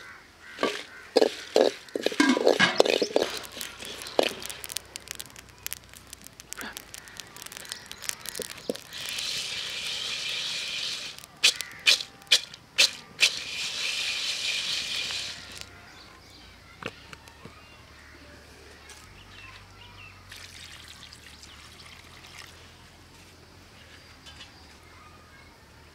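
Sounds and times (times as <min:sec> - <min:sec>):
metal spatula scraping pan: 0:00.6 - 0:04.5
seeds rattling in pan: 0:00.6 - 0:15.7.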